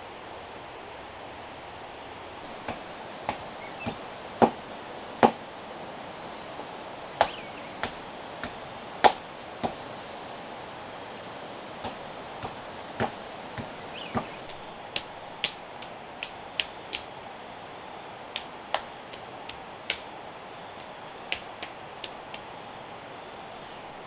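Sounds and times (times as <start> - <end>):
steady background hiss: 0.0 - 24.0
sharp taps and clicks: 11.8 - 17.1, 18.3 - 20.0, 20.8 - 22.5.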